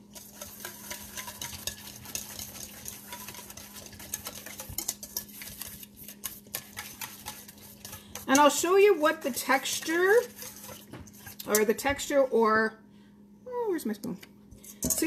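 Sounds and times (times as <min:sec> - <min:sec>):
wire whisk scraping metal bowl: 0:00.0 - 0:12.3, 0:14.6 - 0:15.0.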